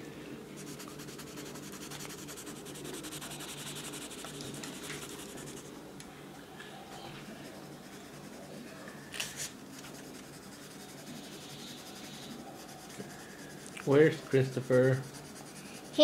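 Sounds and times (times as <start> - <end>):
crayon scribbling on paper: 0.6 - 5.7, 7.4 - 8.5, 9.7 - 16.0.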